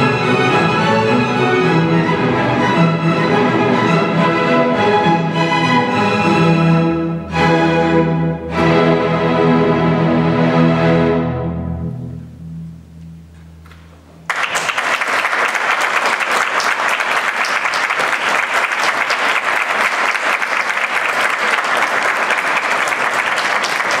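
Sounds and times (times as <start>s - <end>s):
orchestra low chord: 0.0s - 14.3s
audience applause: 14.3s - 24.0s.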